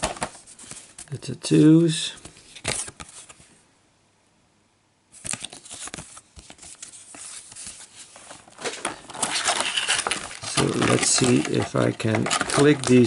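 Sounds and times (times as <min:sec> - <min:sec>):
paper rustling: 0:00.0 - 0:03.5, 0:05.2 - 0:13.0
plastic blister pack crinkling: 0:05.2 - 0:13.0.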